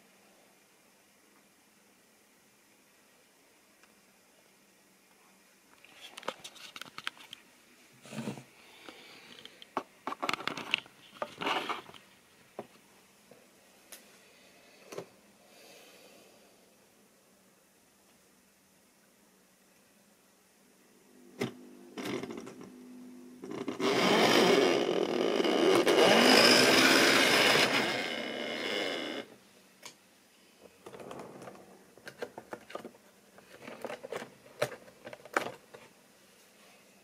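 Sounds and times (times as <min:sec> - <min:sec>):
model train motor whirring: 0:23.4 - 0:29.3.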